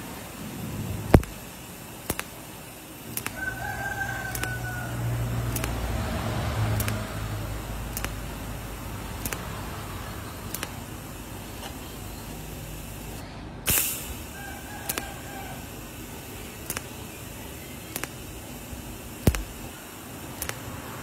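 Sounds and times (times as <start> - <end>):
steady hiss: 0.0 - 21.0
sharp clicks: 1.1 - 1.4, 2.0 - 2.4, 3.1 - 3.4, 4.3 - 4.6, 5.4 - 5.9, 6.7 - 7.1, 7.9 - 8.3, 9.2 - 9.6, 10.5 - 10.8, 14.8 - 15.2, 16.6 - 17.0, 17.8 - 18.3, 19.2 - 20.8
rooster crowing: 3.3 - 5.4, 14.3 - 15.8.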